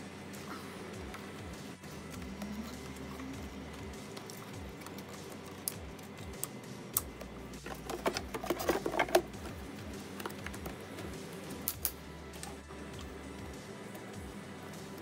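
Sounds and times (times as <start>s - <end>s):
hands handling plastic parts: 7.6s - 11.1s.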